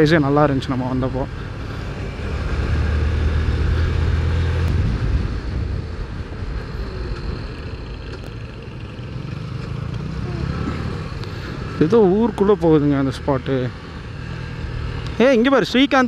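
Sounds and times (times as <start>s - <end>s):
wind rushing over microphone: 3.4s - 7.9s
motorcycle engine running: 4.6s - 16.0s.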